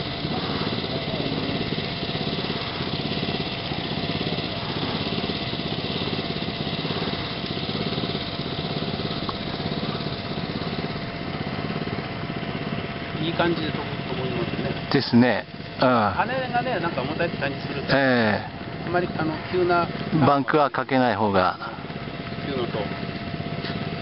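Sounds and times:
small engine running: 0.0 - 24.0.

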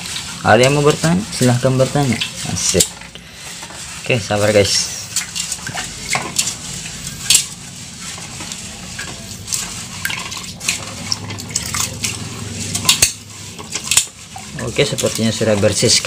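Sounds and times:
rice swishing in water: 0.0 - 16.0.

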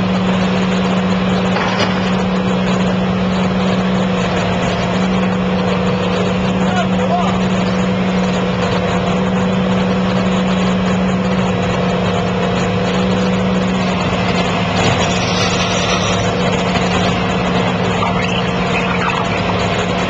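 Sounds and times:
excavator engine and hydraulics: 0.0 - 20.0.

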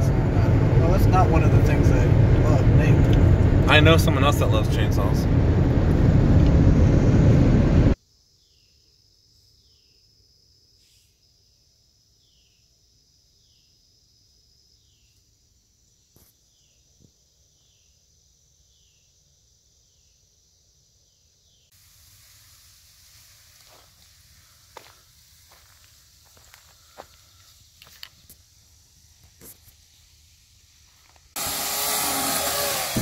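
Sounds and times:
car interior driving noise: 0.0 - 8.0
insect buzz and chirps: 8.0 - 33.0.

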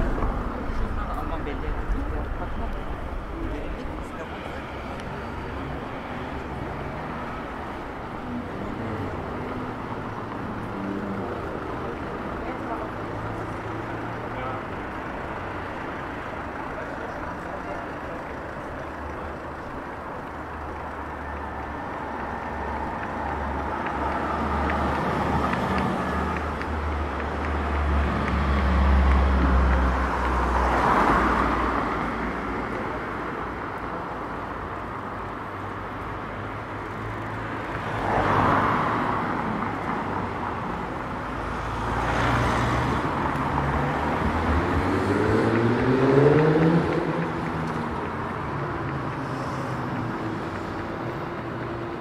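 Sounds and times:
cars passing: 0.0 - 52.0
traffic rumble: 0.0 - 52.0
engine pulling away: 41.8 - 52.0.

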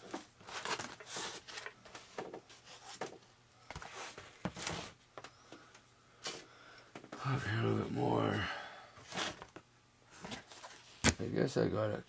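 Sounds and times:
foam and tape rustling: 0.1 - 3.1.

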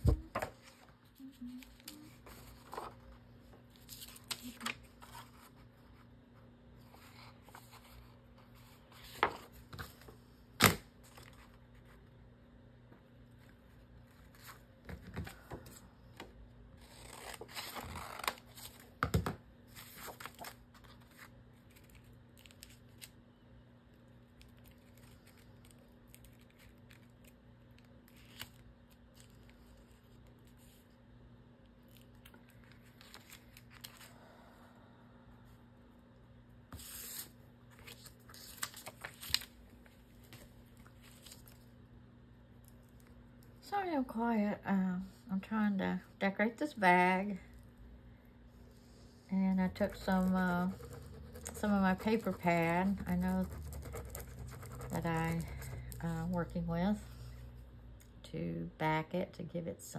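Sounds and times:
paper rustling and tearing: 49.8 - 56.0.

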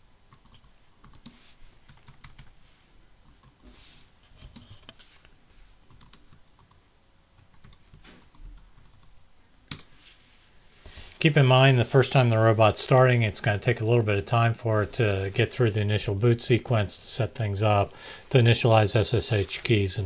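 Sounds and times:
keyboard typing: 0.3 - 2.5, 5.9 - 6.8, 7.4 - 9.1.

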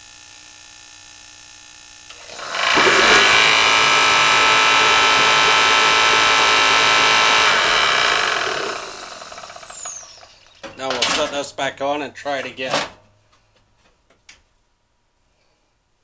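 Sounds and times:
motor winding down whine: 2.1 - 10.7
forced-air heater fan running: 2.1 - 10.9.

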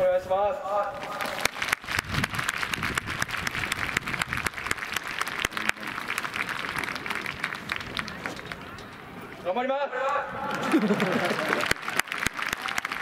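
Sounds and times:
crowd applauding: 1.0 - 8.8, 10.5 - 13.0.

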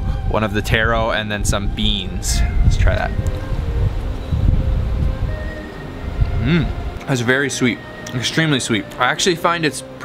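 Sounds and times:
wind buffeting microphone: 0.0 - 7.4.

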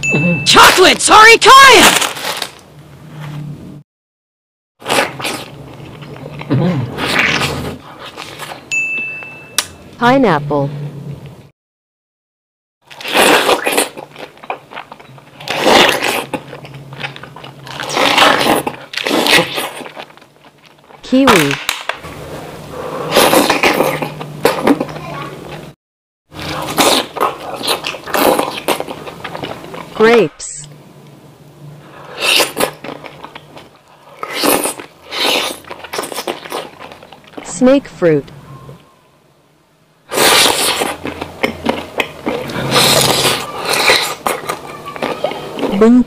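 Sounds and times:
loud bites into pineapple: 1.5 - 2.6, 4.8 - 5.6, 6.4 - 8.6, 12.9 - 14.6, 15.4 - 20.1, 23.0 - 24.9, 26.4 - 29.6, 32.1 - 33.4, 34.2 - 36.9, 40.1 - 45.7
wet chewing: 4.8 - 8.7, 12.8 - 21.0, 21.7 - 25.7, 26.3 - 30.0, 31.8 - 37.5, 40.1 - 46.0.

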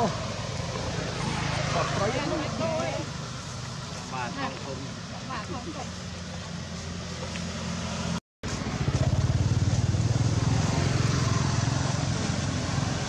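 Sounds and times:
small engine puttering: 8.5 - 10.4.

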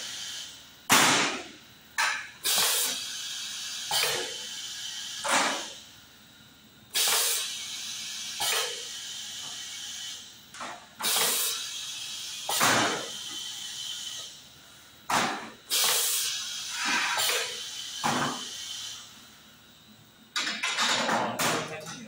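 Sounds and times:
compressed air hiss bursts: 0.0 - 1.4, 2.4 - 5.9, 6.9 - 10.3, 11.0 - 14.4, 15.2 - 19.4
steady air hiss: 2.4 - 6.1, 6.9 - 10.4, 11.0 - 20.2.

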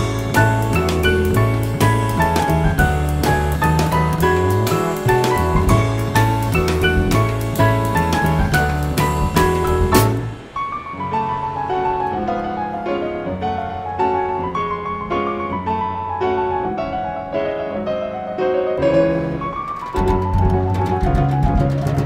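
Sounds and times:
steady percussion beat: 0.0 - 10.4
piano music: 0.0 - 22.0.

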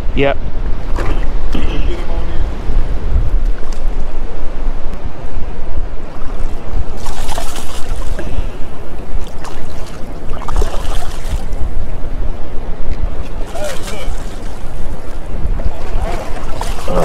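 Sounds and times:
wind buffeting microphone: 0.0 - 17.0
shallow surf lapping: 0.7 - 17.0
fish thrashing and splashing: 7.0 - 8.2.

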